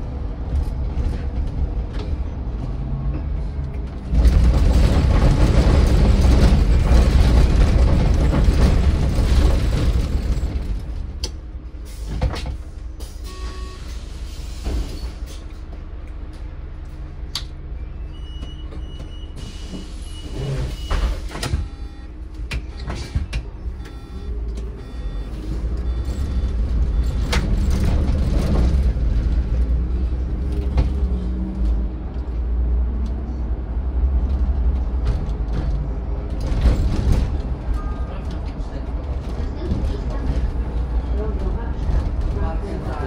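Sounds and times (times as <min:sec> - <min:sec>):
bus engine rumbling: 0:00.0 - 0:43.0
road noise: 0:00.0 - 0:43.0
high steady beep: 0:21.6 - 0:22.1, 0:23.8 - 0:27.2.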